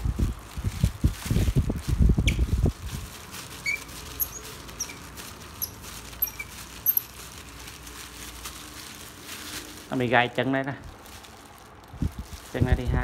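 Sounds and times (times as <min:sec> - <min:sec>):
faint high squeaks and ticks: 0:03.6 - 0:05.0, 0:05.6 - 0:07.1.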